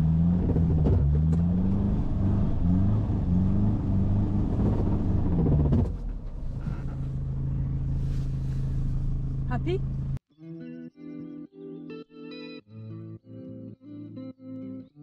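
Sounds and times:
truck engine revving: 0.0 - 8.4.

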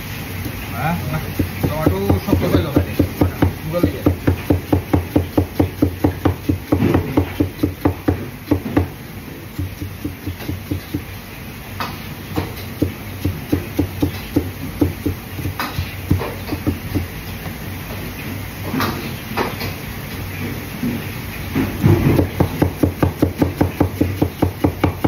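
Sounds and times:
cleaver chopping on cutting board: 1.3 - 11.1, 11.8 - 17.1, 21.8 - 25.0.

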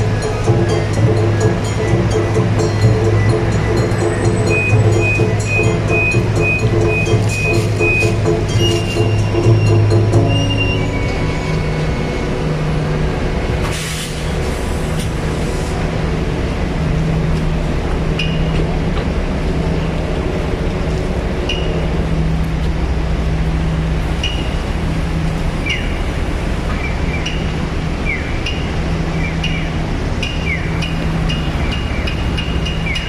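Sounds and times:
idling vehicle engines: 0.0 - 33.0
short high chirps: 0.1 - 11.6
short hiss: 13.6 - 15.7.

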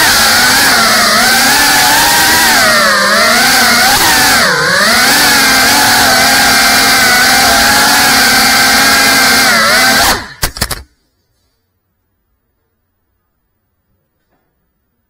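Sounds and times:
drone motors whining: 0.0 - 10.8.

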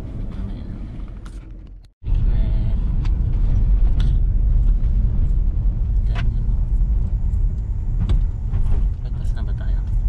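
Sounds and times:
car engine and road noise rumble: 0.0 - 10.0.

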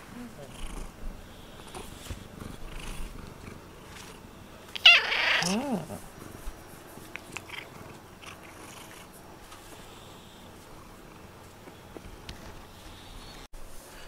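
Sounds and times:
cat crying: 4.8 - 6.0
cat low call: 4.8 - 6.0.

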